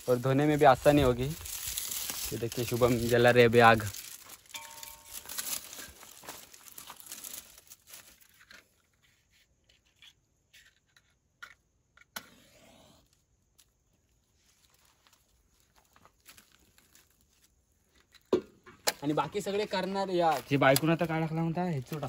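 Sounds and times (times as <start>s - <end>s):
dry grass and twigs rustling: 0.0s - 9.8s, 13.6s - 18.3s.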